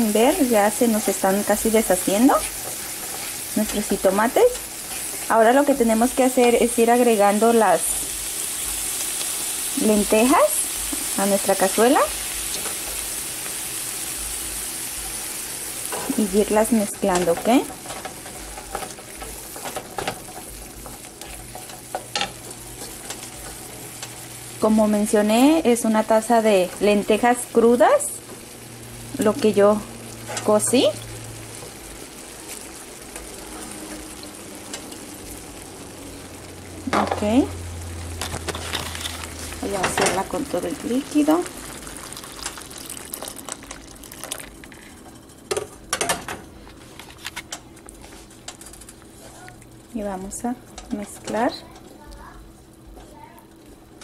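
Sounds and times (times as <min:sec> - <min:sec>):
food sizzling in a frying pan: 0:00.0 - 0:54.0
stew simmering and crackling: 0:00.0 - 0:54.0
wooden spoon scraping a pan: 0:00.8 - 0:05.3.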